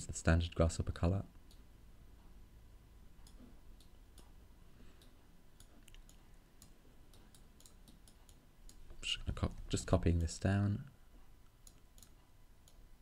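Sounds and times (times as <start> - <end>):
computer mouse clicks: 5.0 - 9.0, 11.6 - 12.8.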